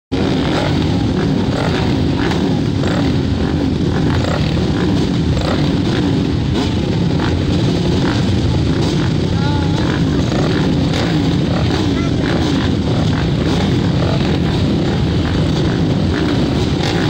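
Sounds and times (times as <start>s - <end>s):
motorcycle engines rumbling: 0.1s - 17.0s.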